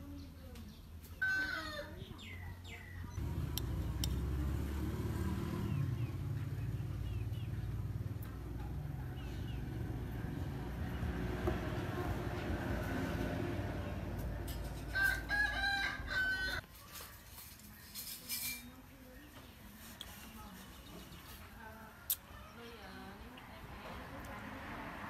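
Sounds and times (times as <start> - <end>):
sharp clicks: 3.5 - 4.3.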